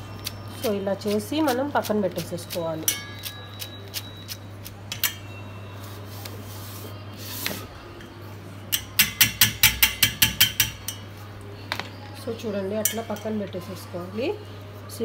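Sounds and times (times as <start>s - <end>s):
metal strainer tapping on bowl: 8.8s - 11.0s.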